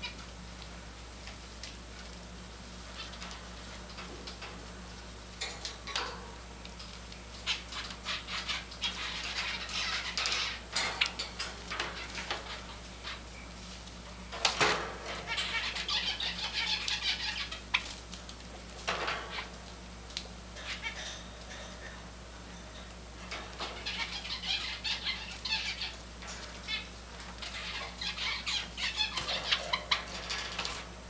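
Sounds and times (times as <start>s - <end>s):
sparrows chirping: 6.9s - 18.0s, 20.6s - 31.0s.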